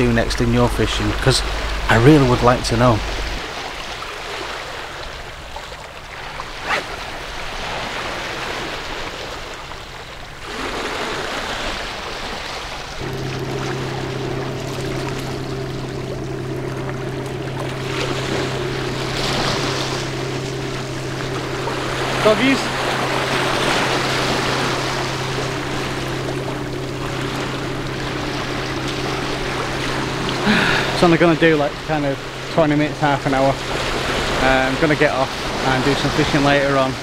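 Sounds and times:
steady low drone: 0:00.0 - 0:04.0, 0:13.0 - 0:37.0
waves lapping against rocks: 0:00.1 - 0:13.8.

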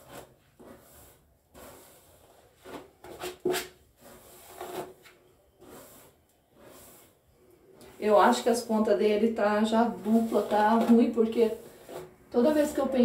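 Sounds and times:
comb drawn through hair: 0:00.0 - 0:08.6, 0:09.7 - 0:13.0.

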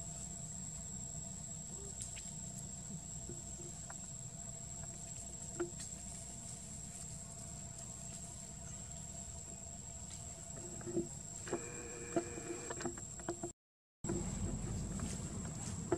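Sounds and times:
low rumble: 0:14.1 - 0:15.9.

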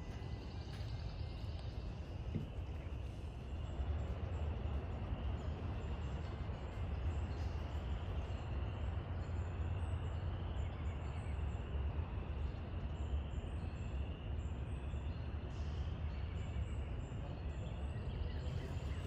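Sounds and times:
faint bird chirps: 0:12.3 - 0:19.0.

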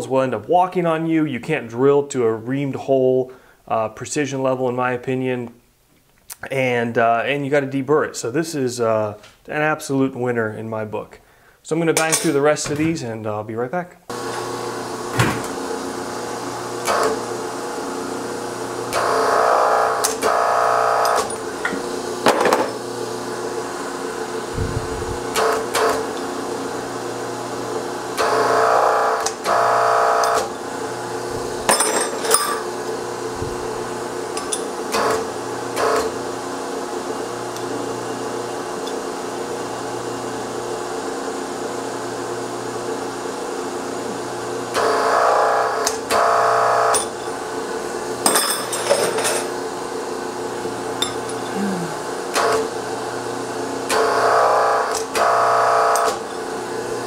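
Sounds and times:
hydraulic power unit humming: 0:14.1 - 0:57.0.

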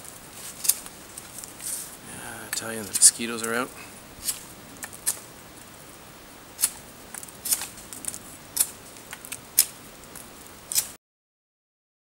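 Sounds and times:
knife scraping wooden stick: 0:00.3 - 0:03.6, 0:04.2 - 0:05.3, 0:06.6 - 0:09.8, 0:10.7 - 0:11.0.

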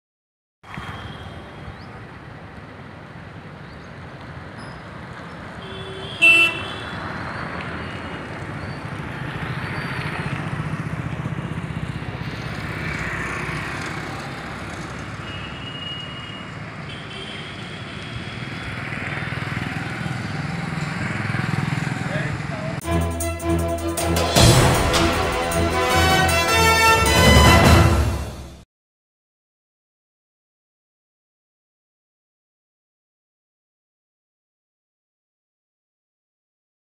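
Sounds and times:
motorcycles and cars passing: 0:00.7 - 0:22.8.

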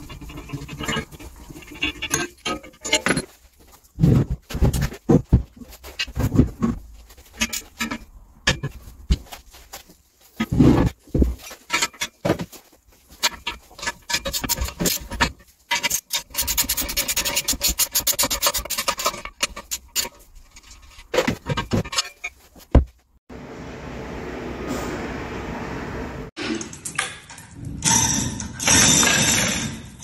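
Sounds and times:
metal clicking and scraping: 0:00.0 - 0:22.7.

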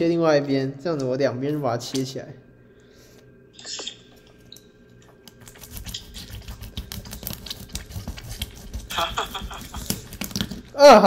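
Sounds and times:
knife scraping: 0:05.3 - 0:10.7
knife crunching through fish bone: 0:05.3 - 0:10.8.

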